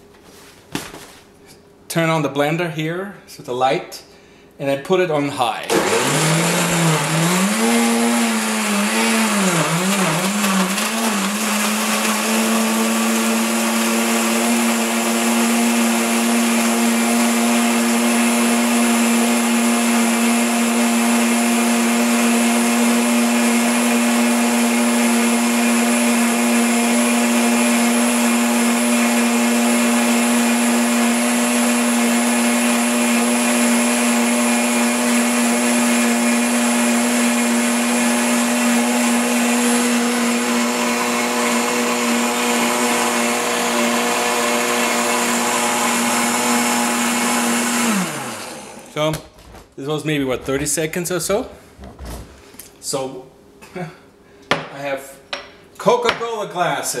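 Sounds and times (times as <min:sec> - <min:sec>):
blender running: 0:05.7 - 0:49.1.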